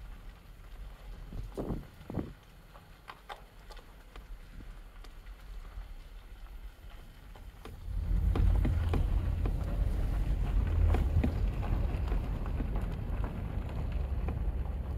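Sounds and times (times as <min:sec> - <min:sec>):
gravel popping under tyres: 0:00.0 - 0:14.9
wind buffeting microphone: 0:01.1 - 0:02.4, 0:07.5 - 0:14.9
tyre noise rumble: 0:07.2 - 0:14.9.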